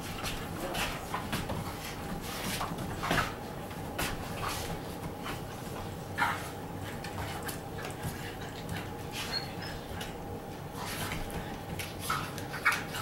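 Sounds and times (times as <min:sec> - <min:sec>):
puppy squeaks: 0:09.2 - 0:09.8.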